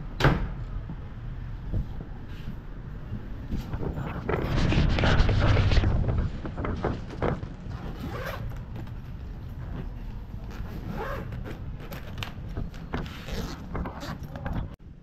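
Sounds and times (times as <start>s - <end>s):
suitcase zipper being pulled: 7.7s - 8.6s, 10.5s - 12.3s, 13.0s - 14.4s.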